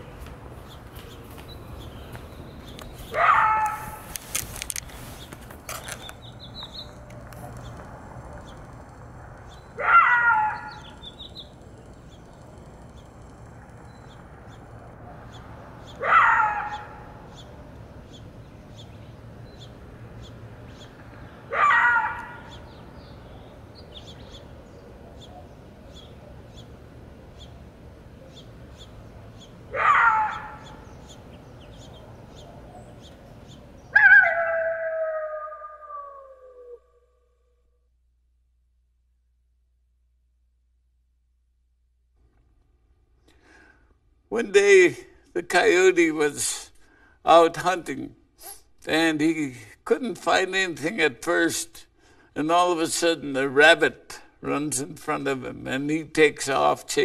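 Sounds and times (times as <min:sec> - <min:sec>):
animal call: 0:33.9 - 0:37.2.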